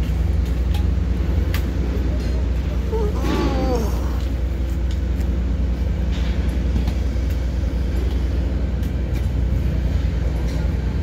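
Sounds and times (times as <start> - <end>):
engine droning: 0.0 - 11.0.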